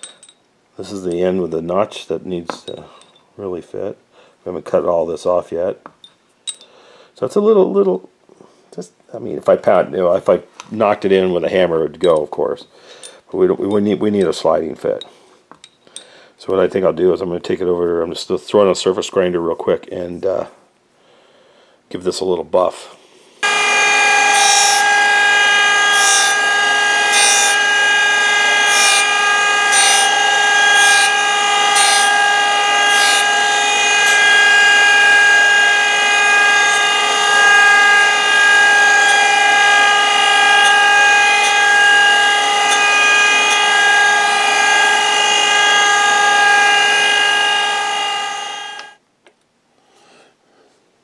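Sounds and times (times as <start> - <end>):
grinding wheel hissing on steel: 23.4 - 49.0
surface grinder whine: 23.4 - 49.0.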